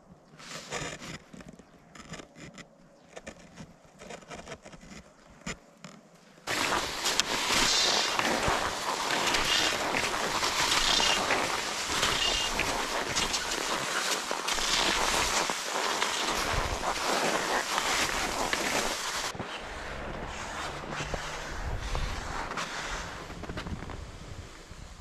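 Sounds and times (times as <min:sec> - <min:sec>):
skis swishing on snow: 0:06.5 - 0:24.7
wind buffeting microphone: 0:19.2 - 0:25.0.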